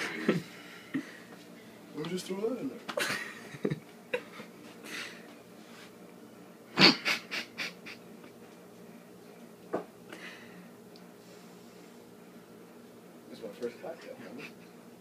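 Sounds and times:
faint breaths: 10.1s - 12.3s.

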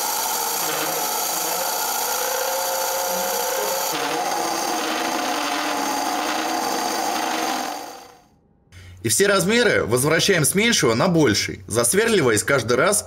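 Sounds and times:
drill bit cutting into wood: 0.0s - 8.2s
lathe motor hum: 0.0s - 8.2s.

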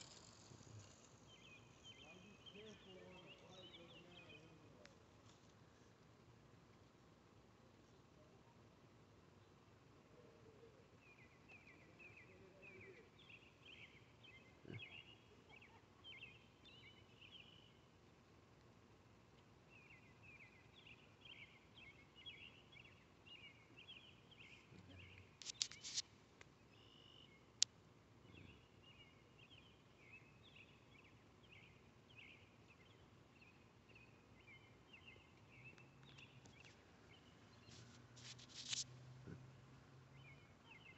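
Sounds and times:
faint birds chirping: 0.0s - 6.2s, 6.9s - 40.9s
sharp clicks: 25.4s - 26.5s.

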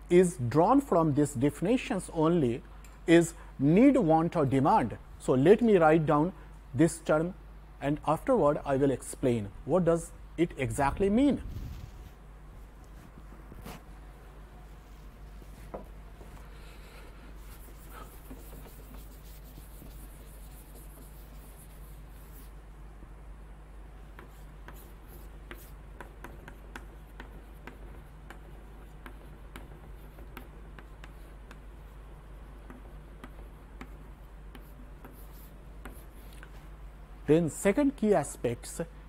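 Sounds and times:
duster wiping chalkboard: 14.7s - 22.6s, 24.1s - 36.7s
chalk tapping and scratching on blackboard: 17.3s - 22.6s, 24.1s - 36.7s.

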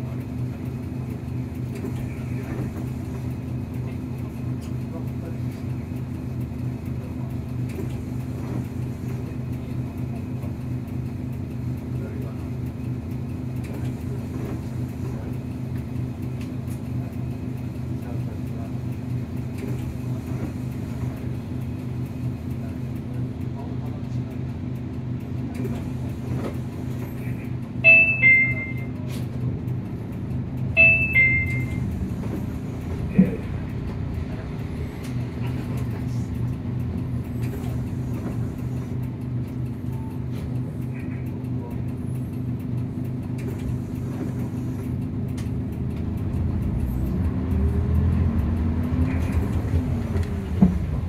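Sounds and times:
bus diesel engine running: 0.0s - 51.0s
two-note electronic chime: 30.8s - 31.8s.

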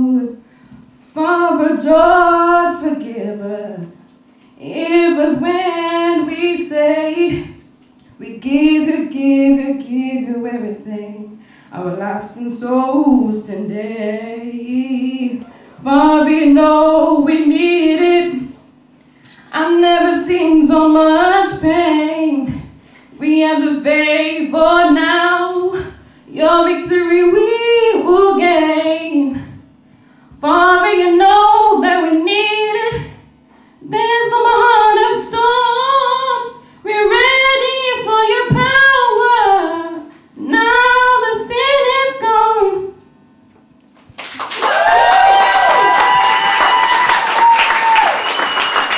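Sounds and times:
woman singing gospel unaccompanied: 0.0s - 0.4s, 1.2s - 18.6s, 19.5s - 29.7s, 30.4s - 33.2s, 33.8s - 43.0s
audience applause and cheering: 44.2s - 48.9s.

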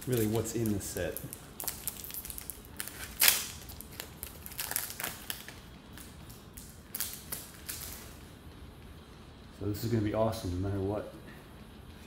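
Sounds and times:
foil wrapper crinkling: 0.0s - 8.2s.

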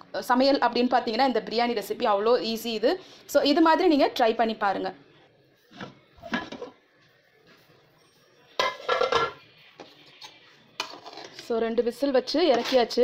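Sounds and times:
metal lid clattering: 8.6s - 9.4s.

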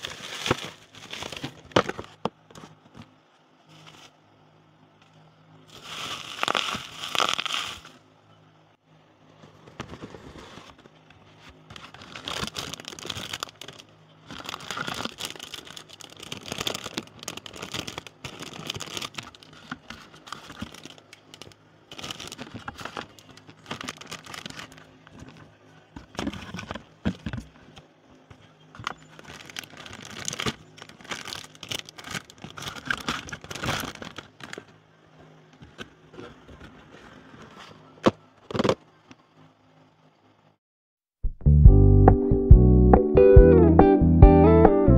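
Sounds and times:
plastic bags crinkling: 0.0s - 2.2s, 5.7s - 8.0s, 11.6s - 27.8s, 28.8s - 34.7s
paper rustling: 0.0s - 3.1s, 5.7s - 8.0s, 9.4s - 34.7s.

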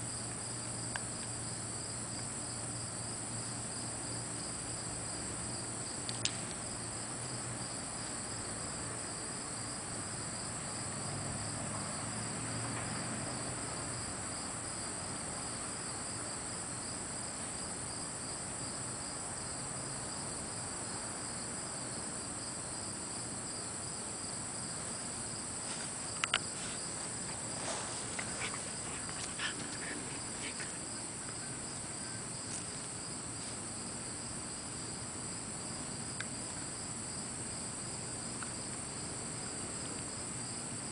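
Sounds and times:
insects chirping: 0.0s - 40.9s
sharp clicks and snaps: 6.1s - 6.5s.

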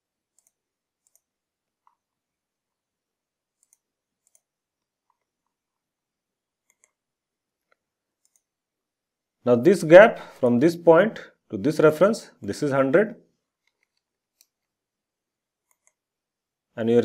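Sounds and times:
computer mouse clicks: 0.3s - 2.1s, 3.5s - 5.6s, 6.6s - 7.0s, 7.6s - 8.5s, 13.6s - 14.8s, 15.6s - 16.1s.

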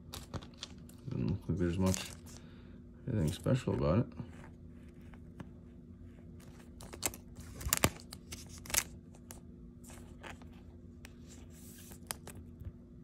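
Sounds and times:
plastic card sleeve crinkling: 0.0s - 2.4s, 6.3s - 12.7s
faint low hum: 0.0s - 13.0s.

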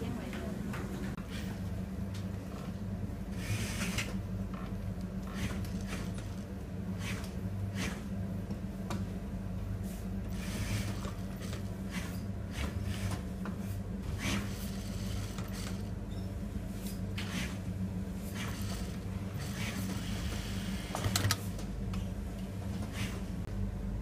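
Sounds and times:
sewing machine humming: 14.2s - 16.0s.

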